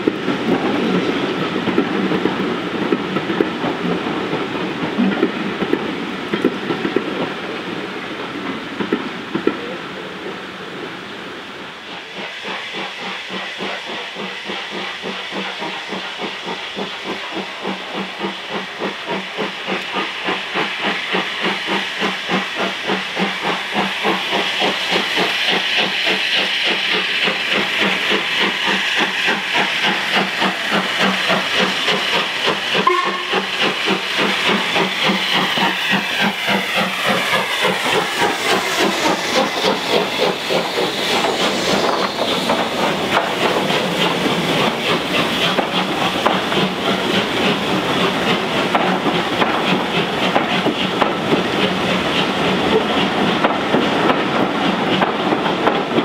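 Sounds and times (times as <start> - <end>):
steam hissing: 0.0 - 56.0
steam locomotive exhaust beats: 0.0 - 56.0.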